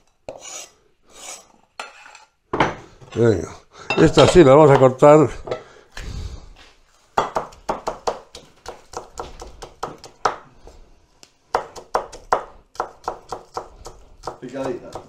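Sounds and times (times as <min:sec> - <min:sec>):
knife chopping on wooden board: 0:07.2 - 0:10.8, 0:11.5 - 0:15.0.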